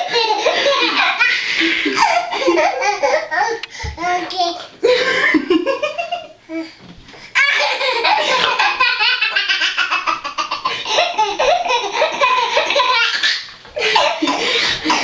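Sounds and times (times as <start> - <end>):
baby laughing: 0.0 - 3.7, 7.4 - 15.0.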